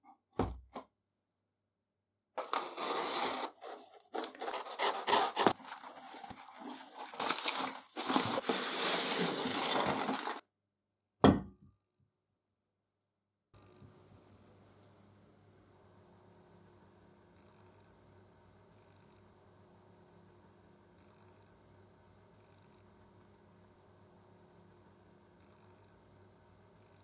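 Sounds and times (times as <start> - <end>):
cardboard flaps pulled open: 2.4 - 10.4
packing tape ripping: 2.4 - 10.4
rustling packing peanuts: 2.4 - 10.4.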